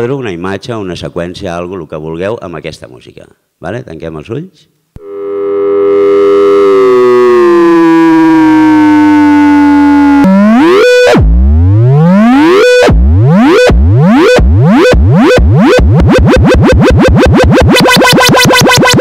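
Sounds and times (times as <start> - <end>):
electronic synthesizer music: 5.0 - 19.0
sweeping synthesizer glides: 5.0 - 19.0.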